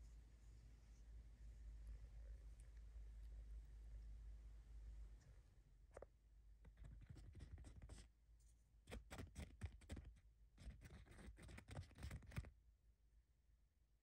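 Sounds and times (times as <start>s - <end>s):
faint quick scratching and tapping: 6.7s - 8.1s, 8.9s - 12.5s.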